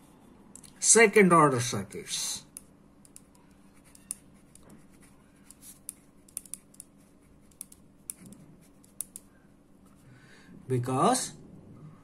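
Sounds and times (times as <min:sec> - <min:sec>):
faint low hum: 0:00.0 - 0:12.0
marker pen squeaking on paper: 0:03.2 - 0:06.8.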